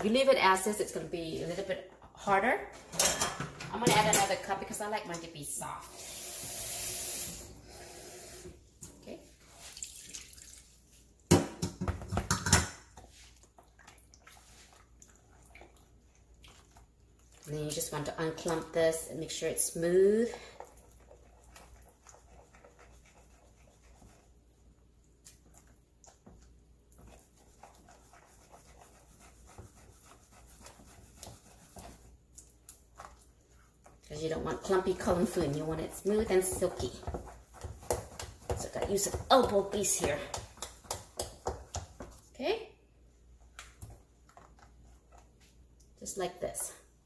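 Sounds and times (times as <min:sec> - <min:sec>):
water pouring into batter: 0:09.6 - 0:11.0
spoon stirring batter: 0:12.1 - 0:46.6.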